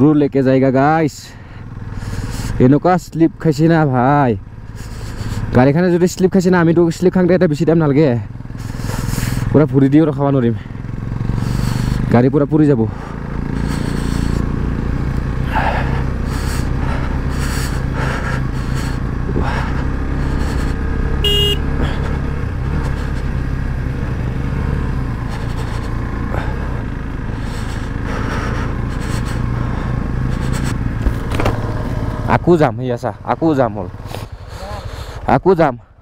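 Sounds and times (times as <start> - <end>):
motorcycle engine running: 0.0 - 36.0
knocks from bike: 31.0 - 31.8.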